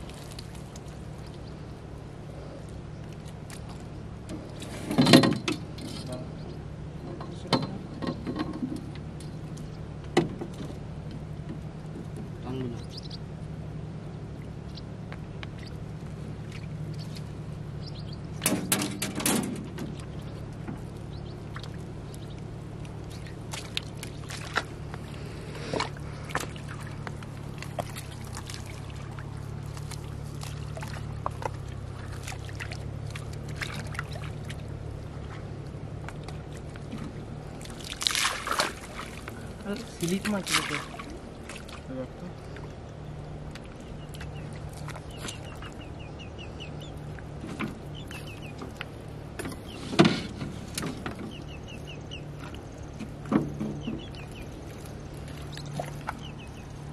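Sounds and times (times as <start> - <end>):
water splashing and pouring: 0.0 - 1.3, 18.6 - 42.0, 54.4 - 56.9
small splashes and knocks: 0.0 - 1.6, 2.6 - 6.2, 7.0 - 12.6, 14.3 - 46.0, 46.8 - 56.9
steady low hum: 0.0 - 56.9.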